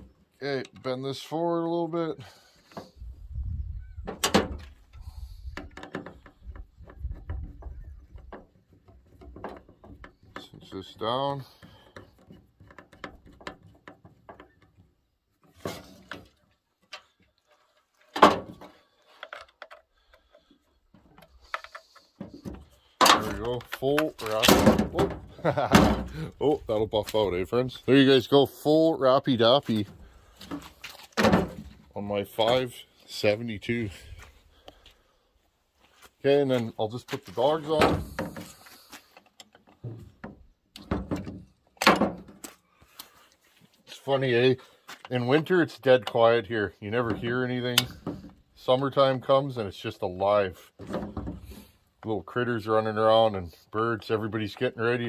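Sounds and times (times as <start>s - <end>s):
chainsaw thump set down: 24.3s - 26.3s, 31.2s - 31.8s.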